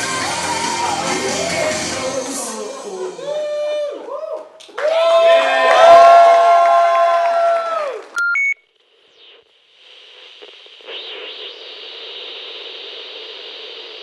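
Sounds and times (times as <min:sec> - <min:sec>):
tv static hiss: 0:08.7 - 0:14.0.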